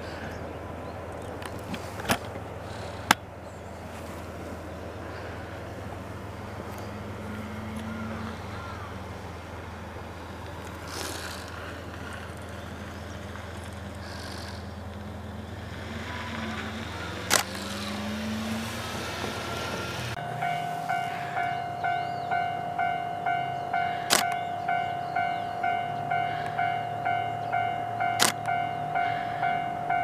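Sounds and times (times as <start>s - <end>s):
distant diesel locomotive engine rumble: 0.0s - 30.0s
sharp click: 24.1s - 24.4s, 28.2s - 28.5s.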